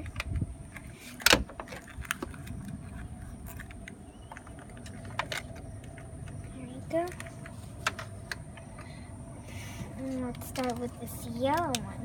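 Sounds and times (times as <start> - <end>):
steady low rumble: 0.0 - 12.0
plastic pieces clicking and tapping: 10.3 - 11.9.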